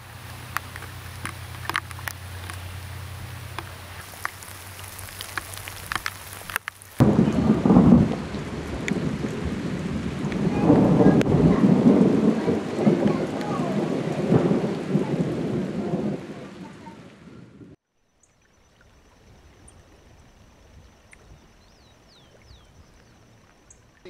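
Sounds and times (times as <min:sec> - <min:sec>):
thunder rumbling: 0:00.0 - 0:17.8
rain: 0:00.0 - 0:24.0.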